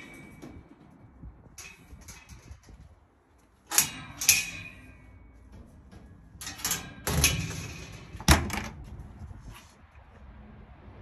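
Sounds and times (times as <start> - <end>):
metal gate clanking: 0.0 - 8.8.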